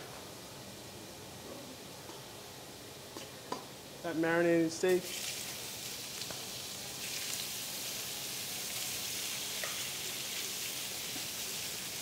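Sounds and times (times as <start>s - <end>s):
meat sizzling in hot pans: 4.9s - 12.0s.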